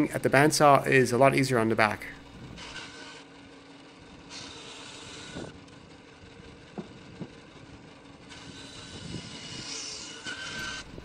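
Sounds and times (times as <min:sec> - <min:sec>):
bandsaw motor hum: 0:00.0 - 0:11.0
wind on microphone: 0:02.3 - 0:02.7, 0:05.1 - 0:11.0
saw blade cutting wood: 0:02.5 - 0:03.3, 0:04.3 - 0:05.7, 0:08.2 - 0:11.0.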